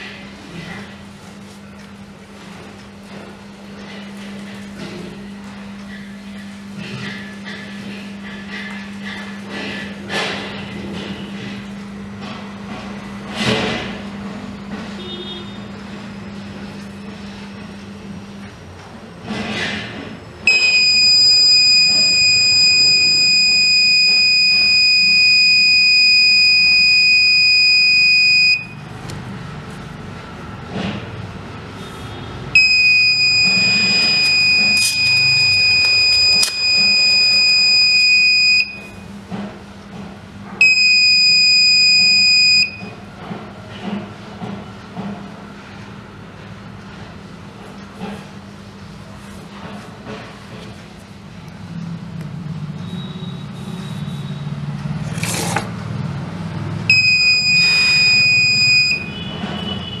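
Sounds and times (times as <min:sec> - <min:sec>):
high-pitched buzzer alarm: 0:20.5 - 0:28.8, 0:32.2 - 0:39.1, 0:40.6 - 0:42.9, 0:56.9 - 1:00.0.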